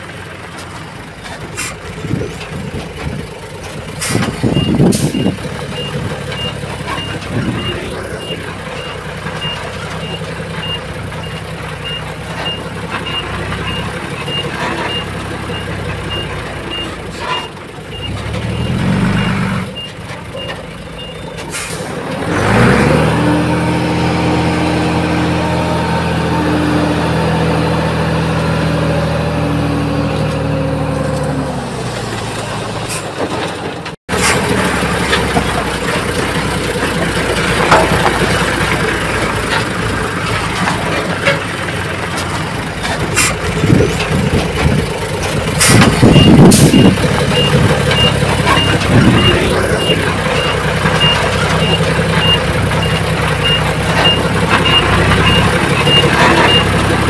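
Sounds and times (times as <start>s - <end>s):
diesel truck engine revving: 0.0s - 57.0s
truck backup alarm beeping: 4.0s - 28.3s, 45.6s - 57.0s.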